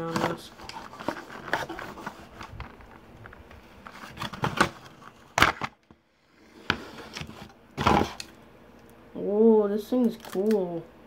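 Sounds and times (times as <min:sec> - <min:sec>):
plastic packaging clicking and rattling: 0:10.0 - 0:10.6.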